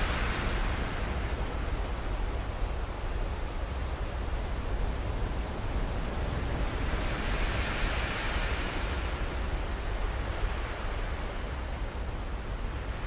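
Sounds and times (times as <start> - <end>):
ocean waves rushing: 0.0 - 1.9.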